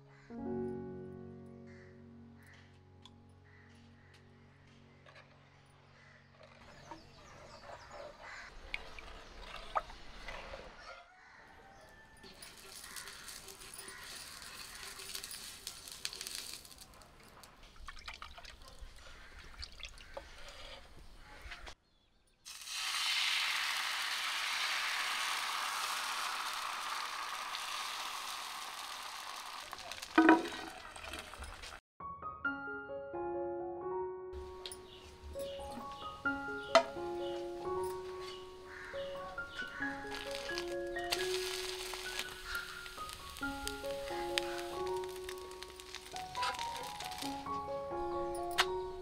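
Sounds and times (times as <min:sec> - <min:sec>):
soft background music: 0:00.0 - 0:07.8, 0:32.0 - 0:49.0
batter sizzling in hot pan: 0:12.3 - 0:17.0, 0:22.5 - 0:30.2, 0:39.7 - 0:47.6
birds chirping: 0:34.4 - 0:49.0.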